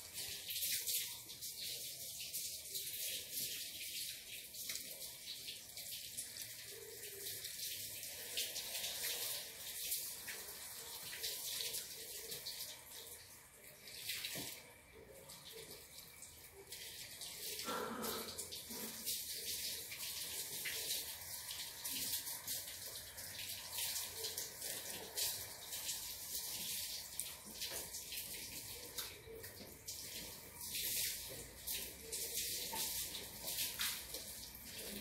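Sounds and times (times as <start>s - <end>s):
water running: 0.0s - 35.0s.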